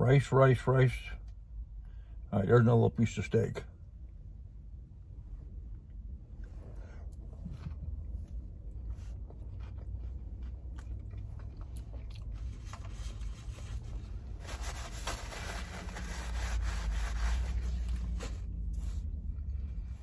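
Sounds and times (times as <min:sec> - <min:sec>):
chewing with mouth clicks: 0:07.1 - 0:12.9.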